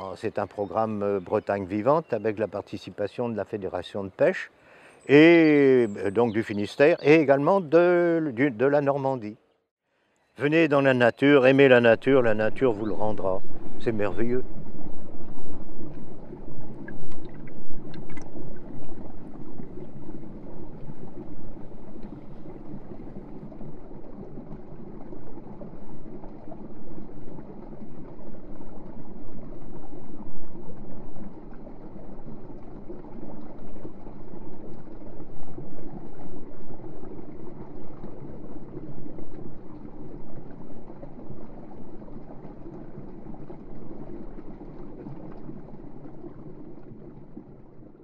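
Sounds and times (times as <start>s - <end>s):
river water burbling over stones: 10.4s - 48.0s.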